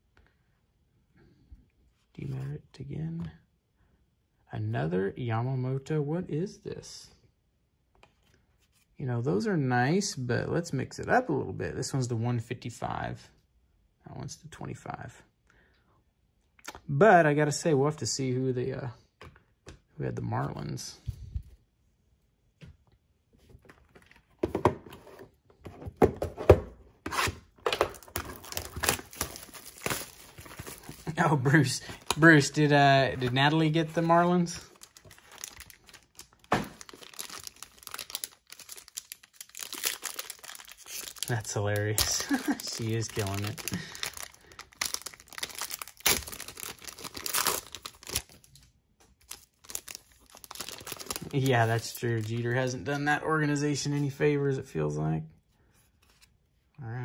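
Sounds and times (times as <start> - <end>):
foil wrapper crinkling: 27.9 - 48.6, 49.2 - 52.6
foil ripping: 34.8 - 48.4.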